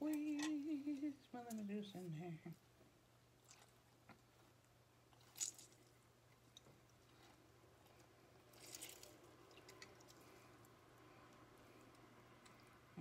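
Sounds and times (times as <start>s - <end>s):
lemon squishing and crackling: 3.3s - 10.8s.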